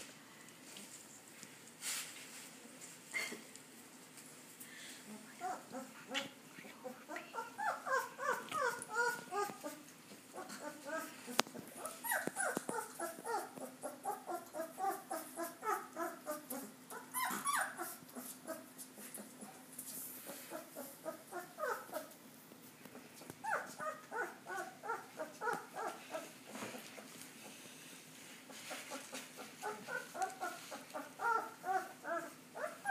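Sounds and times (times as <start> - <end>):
puppies crying: 7.3 - 18.7, 20.5 - 22.1, 23.4 - 26.3, 29.4 - 32.9.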